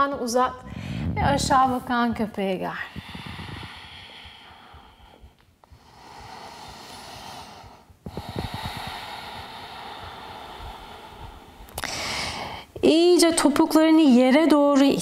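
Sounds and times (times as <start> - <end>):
woman breathing slowly: 0.6 - 1.3, 2.7 - 12.8.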